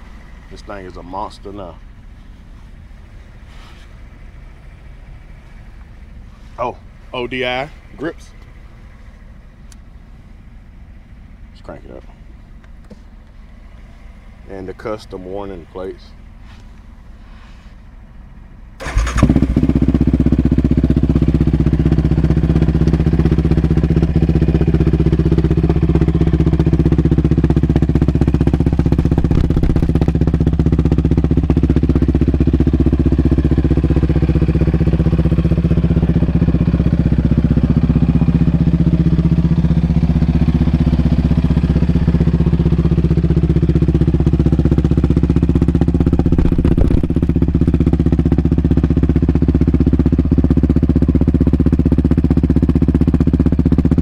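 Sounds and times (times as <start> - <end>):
engine starting and idling: 18.2 - 20.6.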